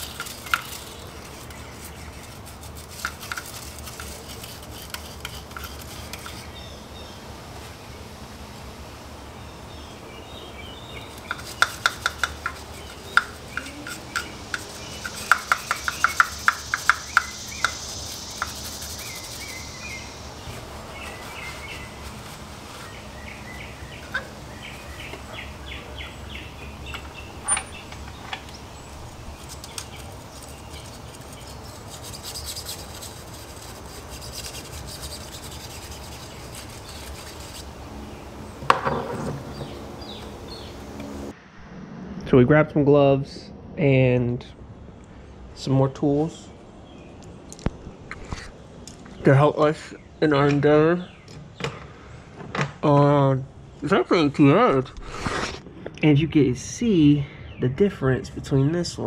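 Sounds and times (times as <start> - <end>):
hand tools scraping metal: 0.0 - 6.6, 11.2 - 19.6, 29.2 - 37.8.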